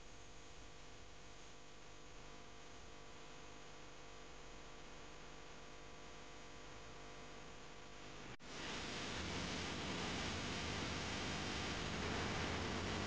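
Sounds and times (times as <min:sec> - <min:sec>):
faint electrical hum: 0:00.0 - 0:13.0
hiss: 0:08.4 - 0:13.0.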